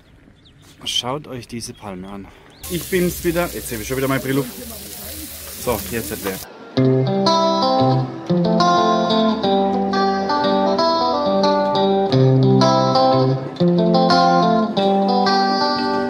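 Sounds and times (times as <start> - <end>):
plucked guitar melody: 6.2 - 16.0.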